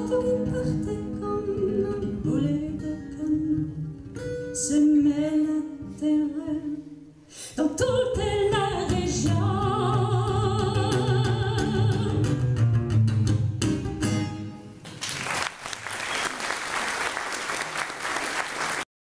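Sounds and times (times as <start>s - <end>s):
woman singing with vibrato: 0.0s - 3.8s, 4.6s - 12.3s
strummed acoustic guitar: 10.8s - 14.8s
audience applause: 14.9s - 18.9s.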